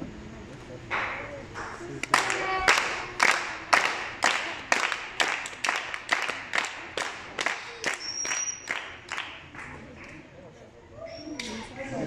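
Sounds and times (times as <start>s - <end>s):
rhythmic hand clapping: 1.0s - 10.3s.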